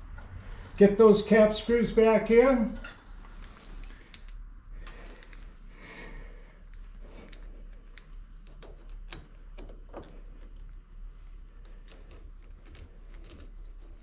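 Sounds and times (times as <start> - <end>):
faint metallic clicks of tools: 2.8 - 5.5.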